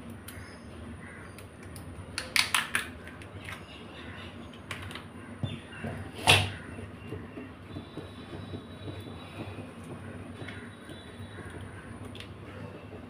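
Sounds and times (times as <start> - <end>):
crab shell cracking: 1.4 - 3.6.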